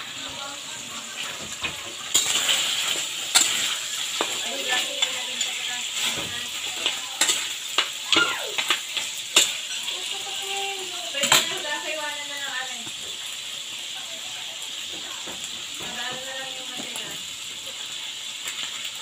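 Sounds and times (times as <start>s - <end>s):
utensil scraping and knocking wok: 0.0s - 13.8s
meat sizzling in hot oil: 0.0s - 19.0s.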